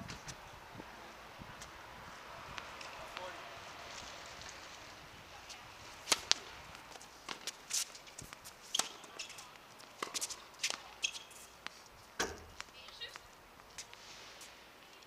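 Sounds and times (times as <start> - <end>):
tennis racket strokes: 5.4 - 15.0
tennis ball bounces: 6.0 - 7.6, 8.2 - 13.2.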